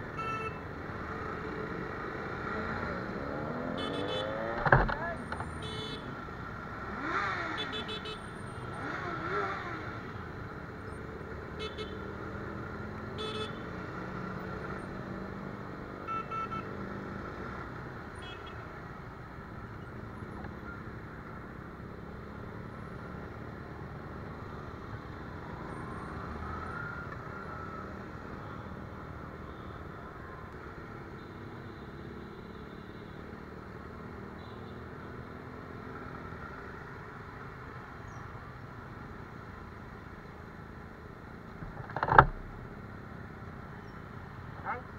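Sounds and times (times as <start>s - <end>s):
vehicle horn toots: 3.8s - 4.4s.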